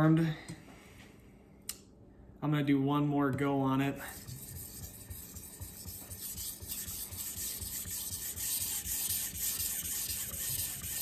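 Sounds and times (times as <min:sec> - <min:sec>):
knife blade rubbing on whetstone: 0:04.1 - 0:11.0.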